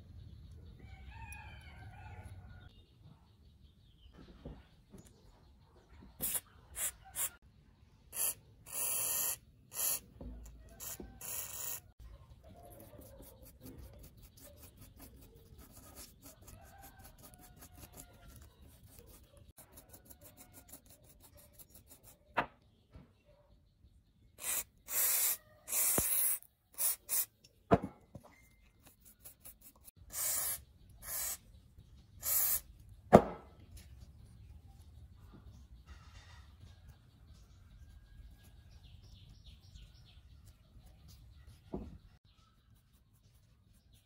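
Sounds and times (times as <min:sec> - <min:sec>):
rubbing and scraping on board: 0:12.5 - 0:22.5
aerosol spray hissing: 0:24.4 - 0:27.3, 0:30.1 - 0:31.4, 0:32.2 - 0:32.6.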